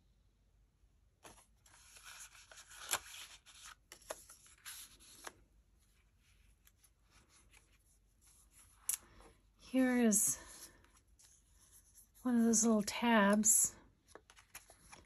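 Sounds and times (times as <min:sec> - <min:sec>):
paper rustling: 0:01.2 - 0:09.3, 0:13.3 - 0:15.0
handling of pages: 0:01.2 - 0:09.4, 0:13.3 - 0:15.0.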